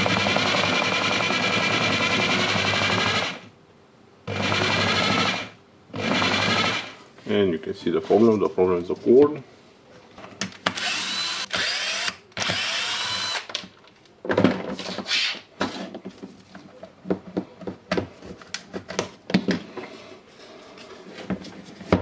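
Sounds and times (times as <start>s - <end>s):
cordless drill whining: 10.7s - 13.5s.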